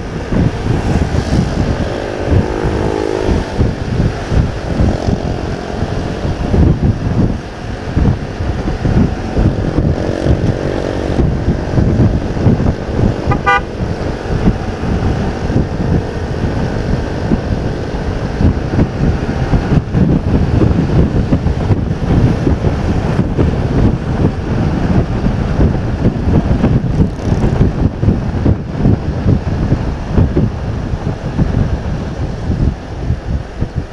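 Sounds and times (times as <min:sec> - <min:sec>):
motorcycle engine running: 0:00.0 - 0:33.9
wind buffeting: 0:00.0 - 0:33.9
vehicle horn toot: 0:13.3 - 0:13.7.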